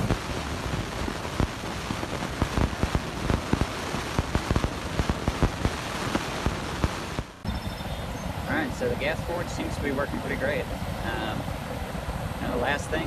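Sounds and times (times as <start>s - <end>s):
crackling pops: 0.0s - 7.4s
gas forge flame roaring: 8.1s - 13.0s.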